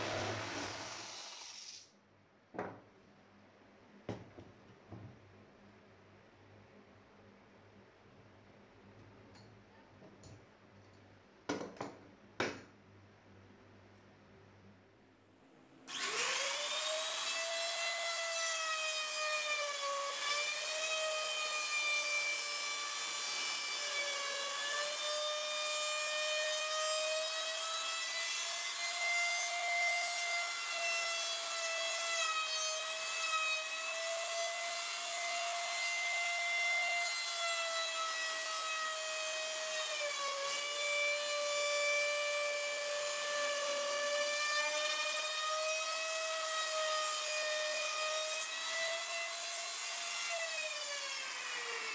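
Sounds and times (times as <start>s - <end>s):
router whining cutting wood: 0.0s - 1.8s, 15.9s - 51.9s.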